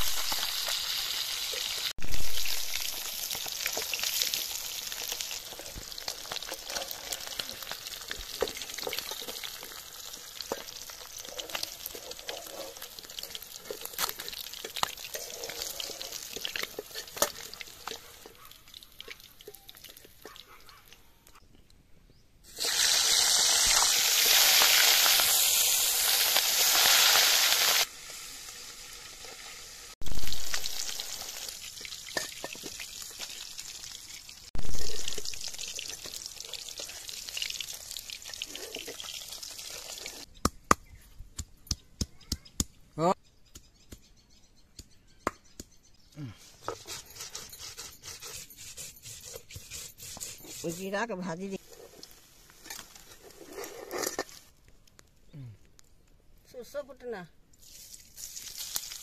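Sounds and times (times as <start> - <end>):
loud sizzling hiss: 0.0 - 5.8, 22.5 - 38.2
fish sizzling in hot oil: 0.0 - 20.2, 22.5 - 40.3, 57.6 - 59.0
metal spatula scraping and tapping: 10.4 - 20.5, 31.8 - 32.9, 46.6 - 50.8, 51.7 - 54.4.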